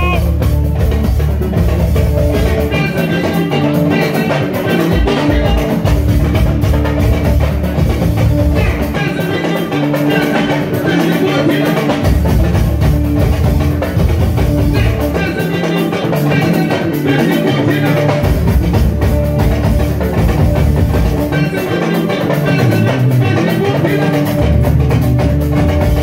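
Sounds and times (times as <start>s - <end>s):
man singing: 0.0s - 0.5s, 2.4s - 6.2s, 8.5s - 12.4s, 14.6s - 18.9s, 21.2s - 24.7s
live band music: 0.0s - 26.0s.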